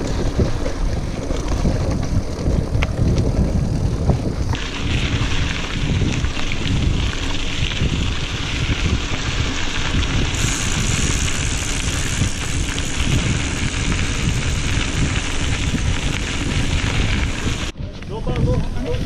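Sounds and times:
bike tyres crunching on gravel: 0:00.0 - 0:18.6
wind buffeting microphone: 0:00.0 - 0:19.0.

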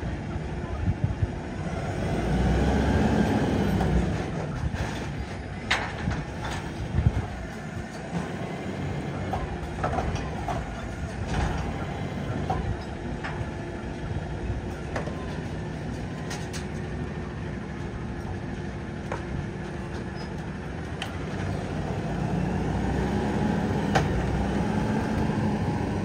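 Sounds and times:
diesel engine running: 0:00.0 - 0:26.0
metal clanks and bangs: 0:03.7 - 0:14.0.

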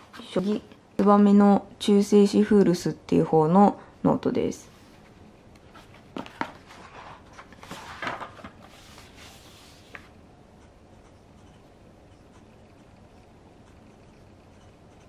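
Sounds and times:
paper rustling: 0:05.7 - 0:10.1.

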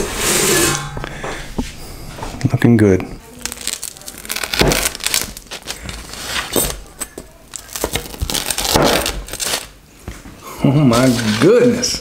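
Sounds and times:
pizza crust crunching under blade: 0:03.4 - 0:09.8.

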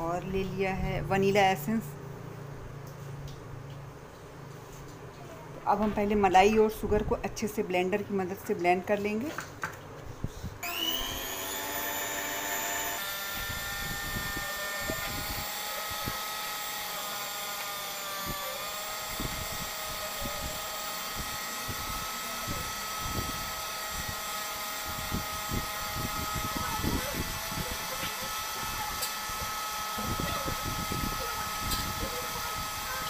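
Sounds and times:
electric hand mixer whine: 0:10.6 - 0:33.0.

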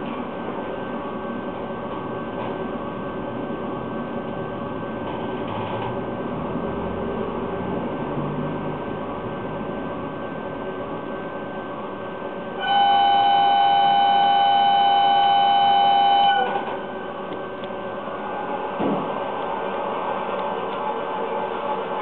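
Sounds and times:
model train running: 0:12.6 - 0:16.5
two-tone train horn: 0:12.6 - 0:16.7.

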